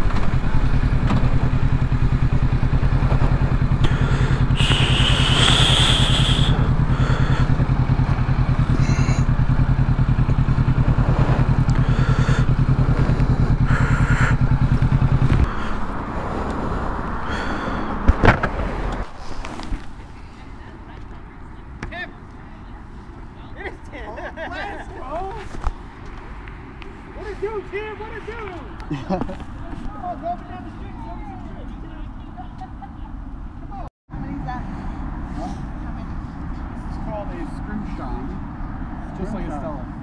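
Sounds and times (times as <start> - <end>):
motorcycle engine idling: 0.0 - 18.1
high squeal: 4.6 - 6.7.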